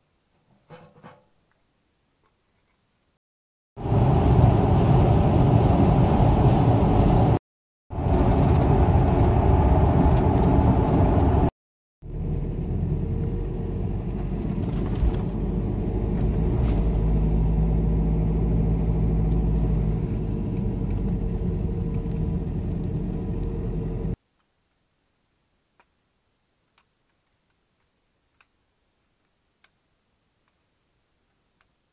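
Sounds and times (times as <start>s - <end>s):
wind blowing against tent: 3.8s - 11.5s.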